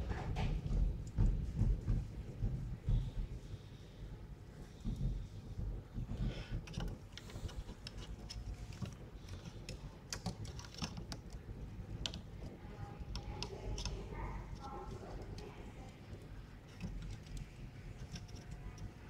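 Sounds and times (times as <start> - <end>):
small plastic clicks and taps: 12.0 - 15.5.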